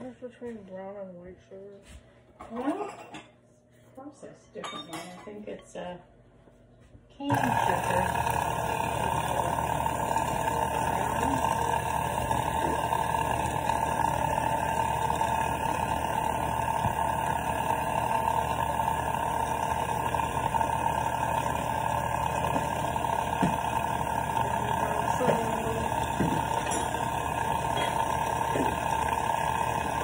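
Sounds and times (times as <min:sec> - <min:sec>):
electric kitchen mixer running: 0:07.2 - 0:30.0.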